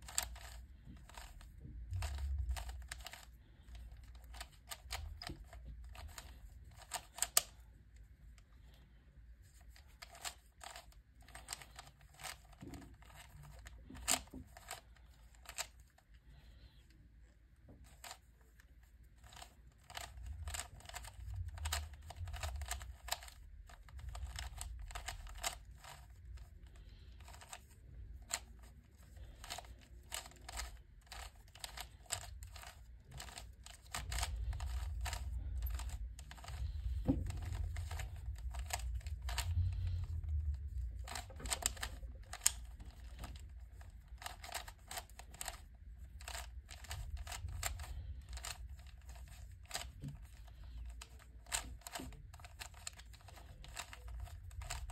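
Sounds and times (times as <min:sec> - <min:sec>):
puzzle cube layers clicking: 0:02.0 - 0:07.5, 0:19.2 - 0:26.1, 0:41.0 - 0:43.5.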